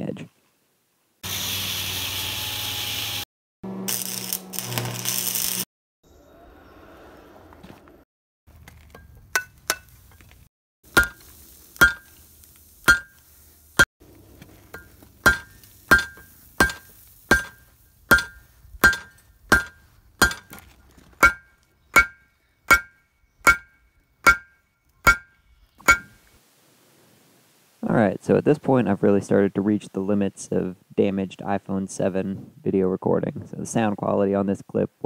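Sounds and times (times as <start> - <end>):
hammer striking steel on anvil: 10.9 - 11.2, 11.8 - 12.1, 12.9 - 13.2, 14.7 - 20.6, 21.2 - 26.2.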